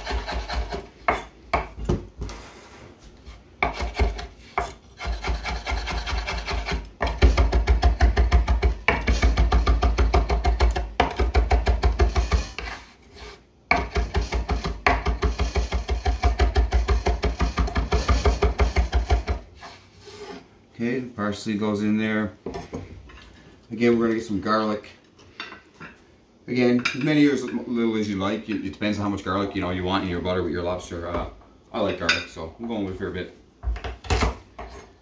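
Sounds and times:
knife chopping on cutting board: 3.6 - 12.8, 13.7 - 19.4.

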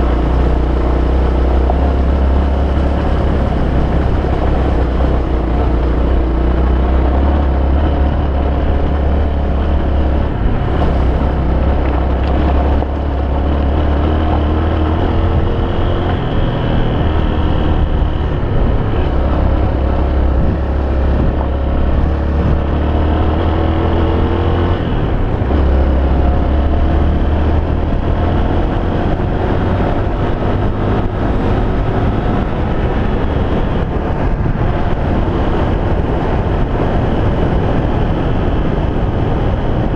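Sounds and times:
motorcycle engine accelerating: 0.0 - 39.9
wind rumble on microphone: 0.0 - 39.9.

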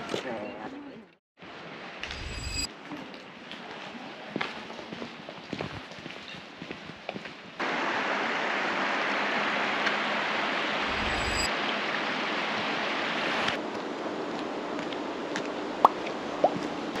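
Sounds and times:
stream rushing over stones: 7.6 - 13.6.

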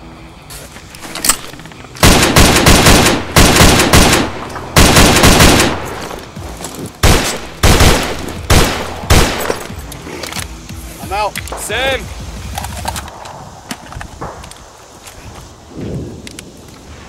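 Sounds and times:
automatic rifle fire: 2.0 - 6.0, 7.0 - 9.6.

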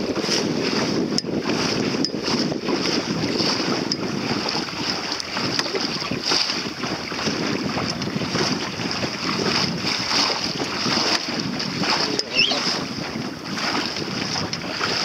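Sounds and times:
water splashing against hull: 0.0 - 15.0
wind buffeting microphone: 0.0 - 15.0.

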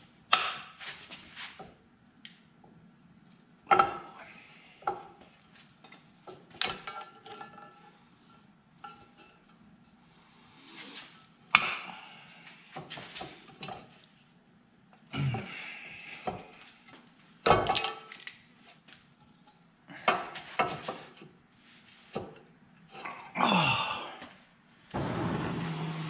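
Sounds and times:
metal parts clanking on steel table: 17.5 - 18.4.

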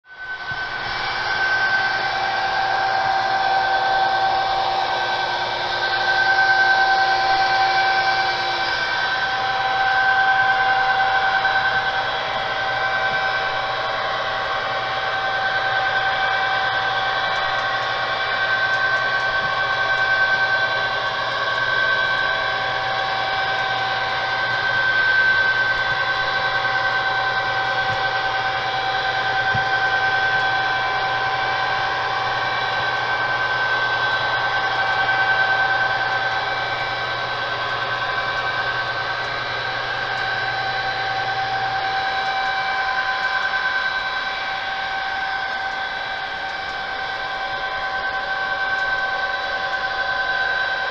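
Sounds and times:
electric motor whine: 0.1 - 50.9.

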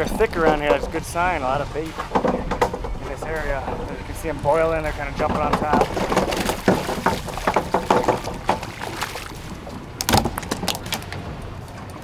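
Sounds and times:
clicks and knocks from boat: 0.0 - 12.0
fish splashing: 4.9 - 11.2.

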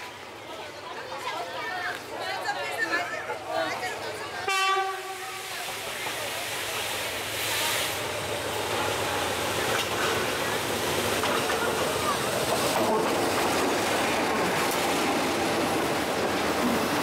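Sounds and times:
train rumbling on track: 0.0 - 17.0
train horn: 4.4 - 5.4.

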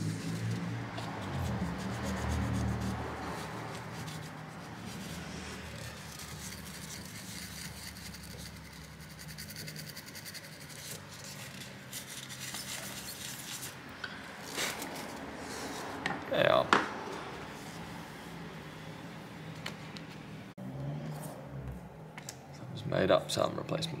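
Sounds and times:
toothbrush scrubbing: 0.0 - 13.8.

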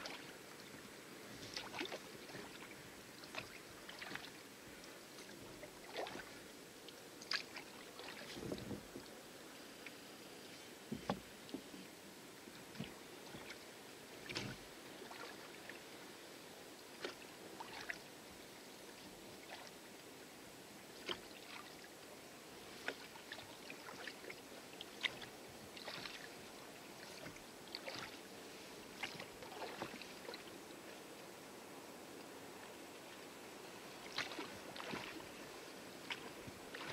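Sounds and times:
water lapping against hull: 0.0 - 20.0, 20.8 - 31.3, 32.1 - 36.9
faint steady hiss: 0.0 - 36.9
oars splashing in water: 1.4 - 4.4, 5.2 - 6.4, 7.2 - 8.9, 14.2 - 15.7, 22.7 - 26.4, 27.0 - 28.3, 28.9 - 30.5, 34.0 - 36.9.

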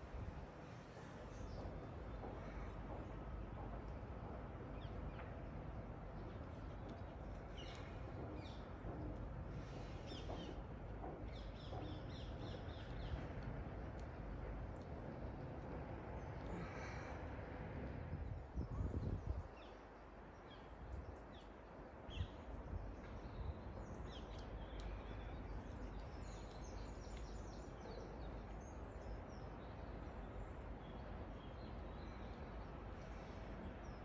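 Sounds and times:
wind gust on microphone: 17.4 - 19.6.

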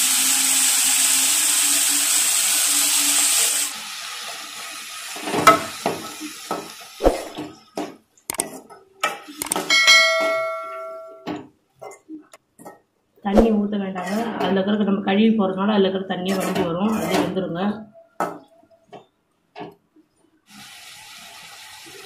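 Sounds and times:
vegetables sizzling in hot oil: 0.0 - 7.1, 20.5 - 22.0
metal pan ringing: 5.5 - 5.8, 9.6 - 11.3
spoon stirring and scraping pan: 16.1 - 17.5.

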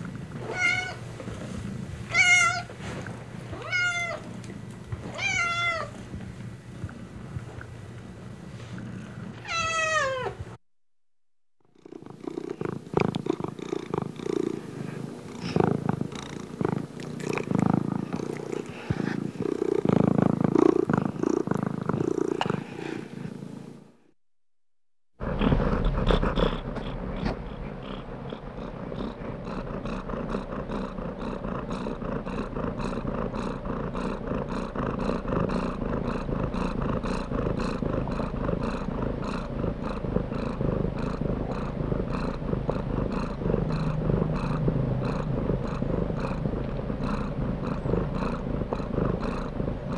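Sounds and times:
cat purring: 0.0 - 9.5, 11.7 - 23.8, 25.2 - 49.9
cat meowing: 0.5 - 1.0, 2.1 - 2.7, 3.6 - 4.2, 5.2 - 5.9, 9.4 - 10.4.

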